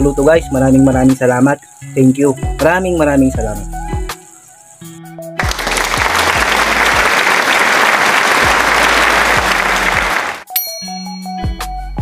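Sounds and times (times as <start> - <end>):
crowd applause: 5.4 - 10.5.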